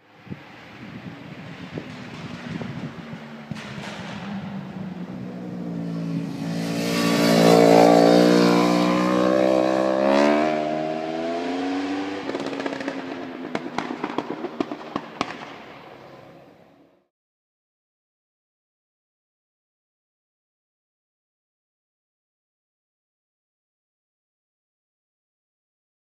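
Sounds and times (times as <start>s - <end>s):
motorcycle engine passing: 0.8s - 16.5s
exhaust crackles and pops: 1.2s - 6.6s, 12.2s - 16.0s.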